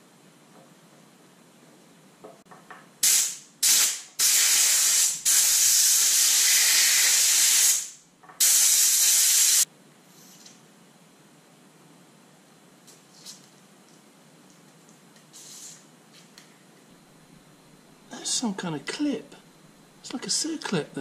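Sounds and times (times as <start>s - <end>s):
aerosol spray hissing: 3.0s - 9.7s, 15.3s - 15.8s.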